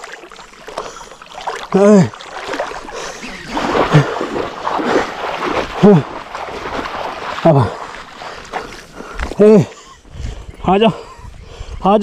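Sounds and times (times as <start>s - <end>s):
fish thrashing in water: 0.0s - 9.4s.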